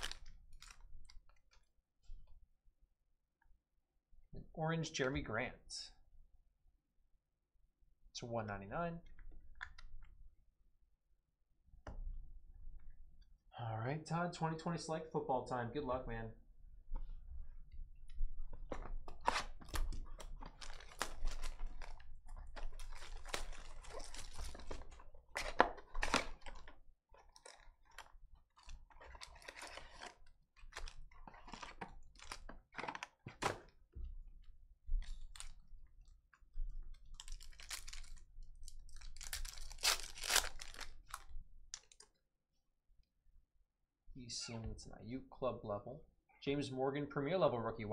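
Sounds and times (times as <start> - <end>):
wrappers tearing and rustling: 0.0 - 1.7, 19.2 - 33.2, 37.0 - 42.0.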